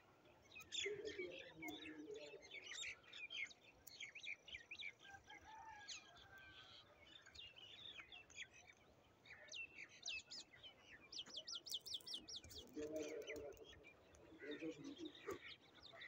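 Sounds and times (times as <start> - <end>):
small birds chirping: 0.0 - 5.1, 7.0 - 16.0.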